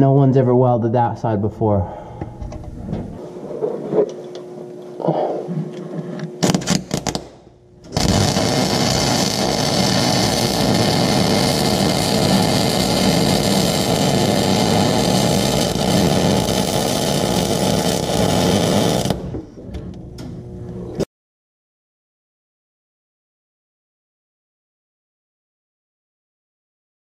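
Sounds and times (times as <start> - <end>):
welder arc welding: 6.4 - 19.3.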